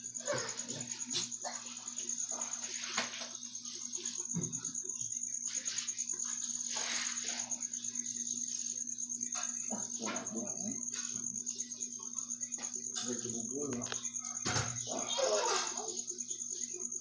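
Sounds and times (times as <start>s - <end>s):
cricket chirping trill: 0.0s - 17.0s
soft brushing noises: 5.5s - 8.6s.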